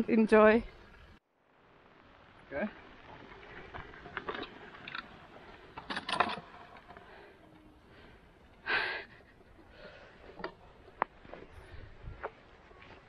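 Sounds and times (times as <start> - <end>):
scattered clicks and rattles: 3.7 - 7.0.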